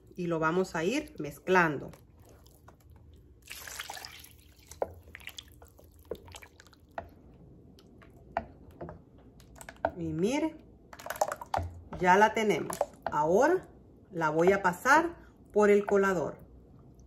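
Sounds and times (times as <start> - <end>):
wooden spoon stirring in metal bowl: 0.1 - 13.4
broth pouring: 2.0 - 7.0.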